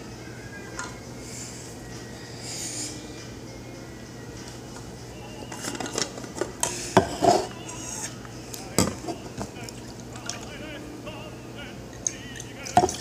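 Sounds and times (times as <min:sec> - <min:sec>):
steady low hum: 0:00.0 - 0:13.0
kitchen things clattering on counter: 0:05.6 - 0:07.5.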